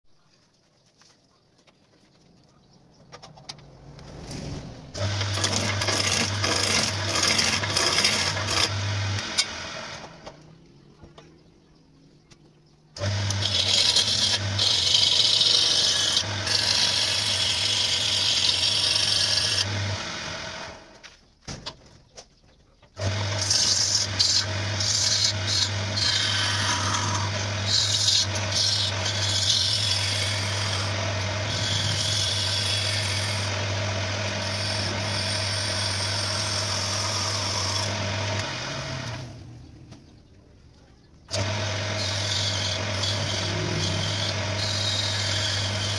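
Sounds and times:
gouge scraping spinning wood: 4.2 - 10.1, 13.0 - 20.9, 23.0 - 39.4, 41.3 - 45.9
lathe motor hum: 4.9 - 10.4, 13.0 - 20.9, 23.0 - 39.6, 41.3 - 45.9.

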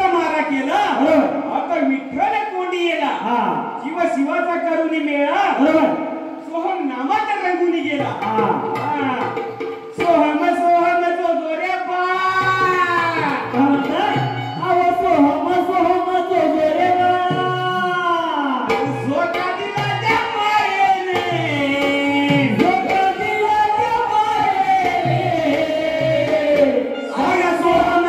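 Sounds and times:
hand drum beats: 8.0 - 10.4, 12.4 - 18.0, 18.6 - 28.0.

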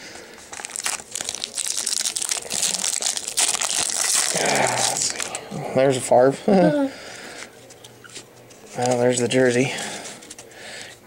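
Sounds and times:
foil wrapper crinkling: 0.4 - 5.4, 7.6 - 9.2.

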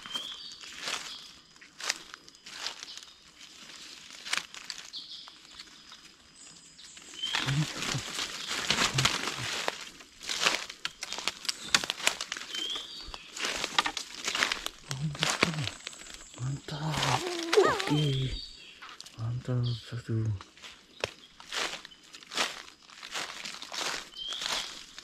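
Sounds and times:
footsteps crunching dry leaves: 0.0 - 19.1, 20.5 - 25.0
brushing past undergrowth: 7.1 - 18.2.

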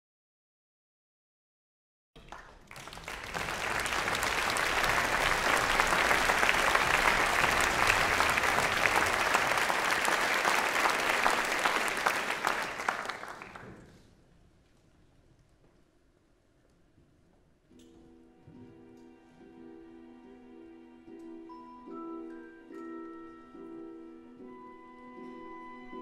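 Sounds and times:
audience applauding: 2.2 - 14.0.

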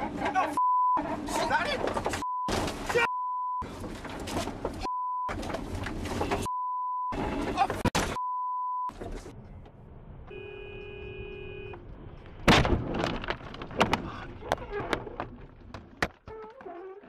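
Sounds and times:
road noise inside a car: 0.0 - 12.6
car crash: 1.1 - 6.5, 7.1 - 8.2, 12.3 - 16.0
car horn: 6.1 - 6.5, 10.3 - 11.8
censor bleep: 6.4 - 7.2, 8.2 - 8.9
sharp knocks and clatters: 12.4 - 16.4.

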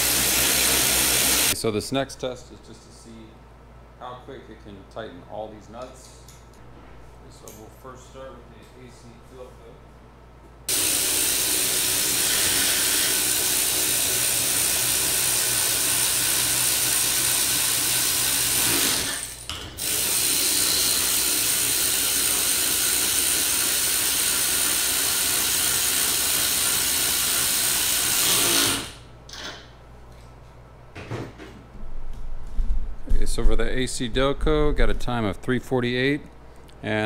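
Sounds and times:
cordless ratchet motor running: 10.7 - 29.0.

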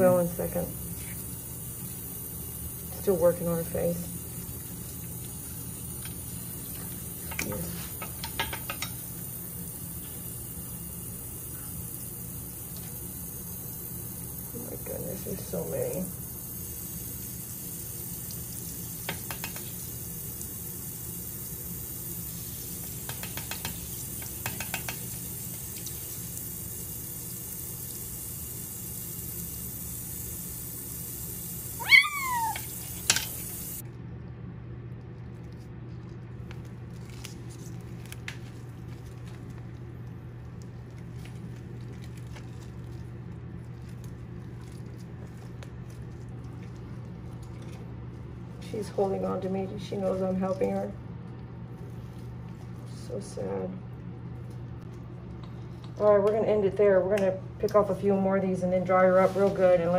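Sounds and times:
faucet running into sink: 0.0 - 33.8
kitten mewing: 31.8 - 32.7.

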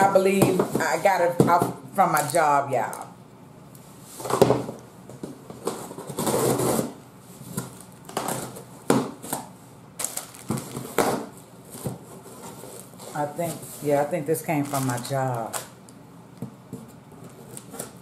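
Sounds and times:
packing tape cut and ripped: 10.0 - 11.2, 14.6 - 15.7.

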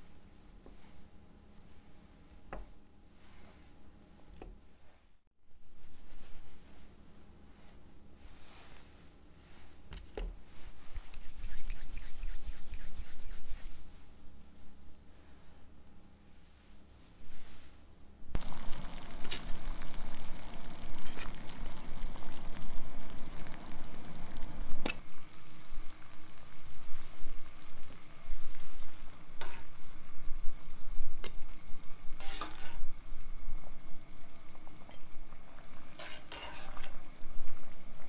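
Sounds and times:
water boiling in a pot: 10.8 - 14.0, 18.4 - 38.0
metal spoon scraping a pot: 32.2 - 32.9, 36.0 - 37.0.

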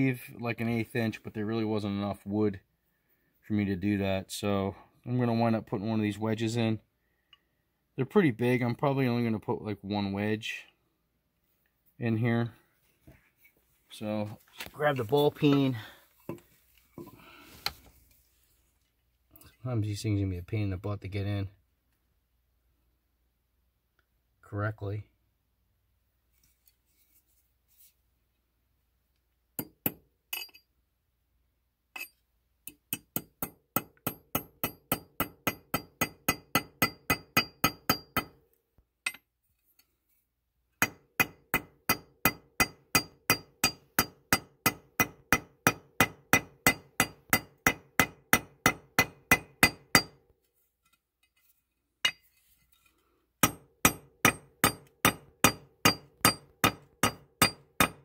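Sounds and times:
hammer striking metal wedge: 32.7 - 38.4, 40.8 - 50.2, 53.4 - 58.0.

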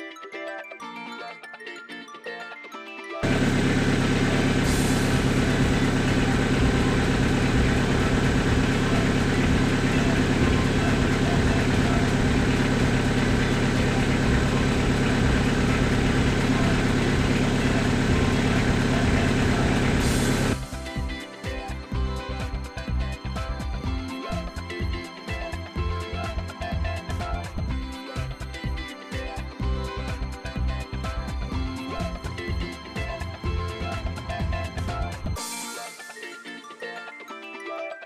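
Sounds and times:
van engine idling: 3.2 - 20.6.

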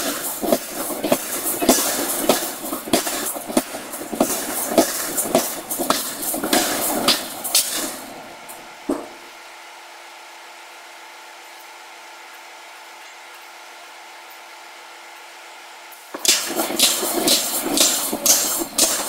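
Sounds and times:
power hammer striking steel: 0.0 - 9.2, 16.2 - 19.0
steady machine hum: 0.0 - 12.7, 14.6 - 19.0.

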